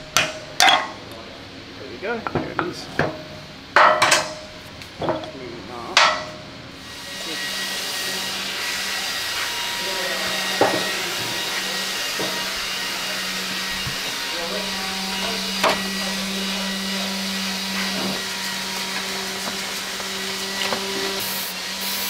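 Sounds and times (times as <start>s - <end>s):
aerosol spray burst: 21.2s - 22.0s.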